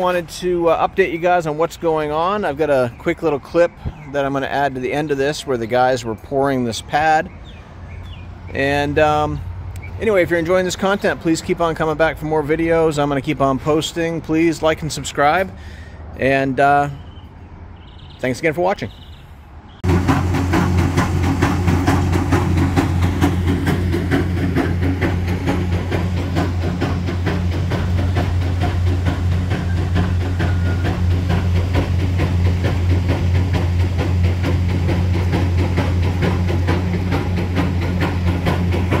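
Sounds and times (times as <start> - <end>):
concrete pump engine drone: 19.8 - 39.0
fast rattling clatter: 19.8 - 39.0.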